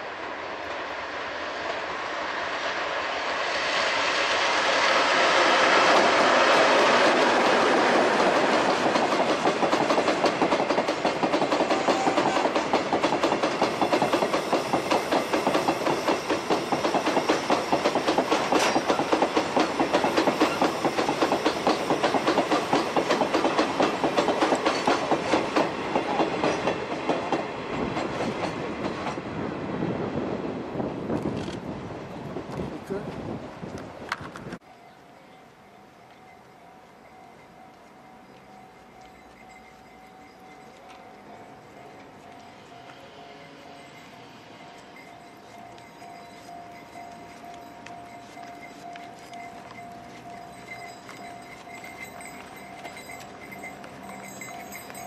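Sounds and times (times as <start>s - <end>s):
electric locomotive passing: 0.0s - 32.6s, 33.3s - 55.0s
train wheels clattering over rail joints: 5.0s - 29.3s.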